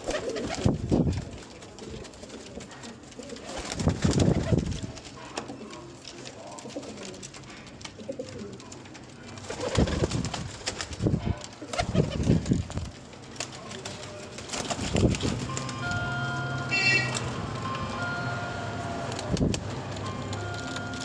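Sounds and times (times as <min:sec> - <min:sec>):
pigeons cooing: 0:00.0 - 0:10.3.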